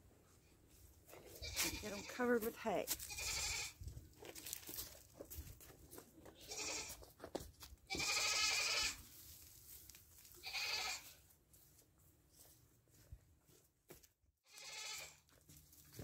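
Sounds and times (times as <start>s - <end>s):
dry hay rustling: 0.7s - 13.6s, 14.8s - 16.0s
goats bleating: 1.4s - 2.1s, 3.1s - 3.8s, 6.4s - 7.0s, 7.9s - 9.0s, 10.4s - 11.1s, 14.5s - 15.2s.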